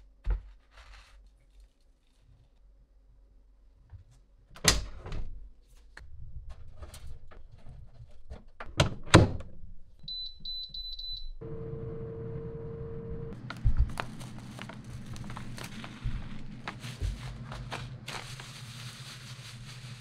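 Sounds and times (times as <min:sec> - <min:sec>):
low hum: 0:11.1 - 0:19.9.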